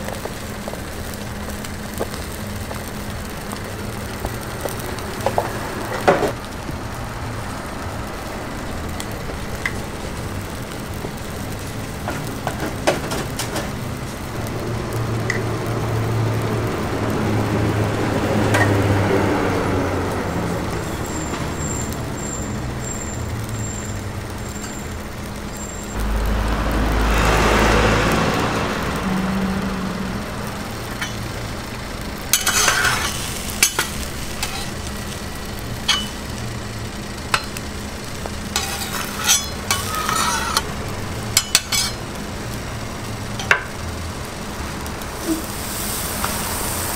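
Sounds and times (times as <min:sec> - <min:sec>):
egg batter sizzling on griddle: 0:00.0 - 0:46.9
low rumbling: 0:25.9 - 0:32.4
steady hum: 0:28.3 - 0:42.8
metal spatula scraping griddle: 0:32.3 - 0:34.8, 0:35.9 - 0:36.2, 0:38.5 - 0:40.8, 0:41.4 - 0:42.0.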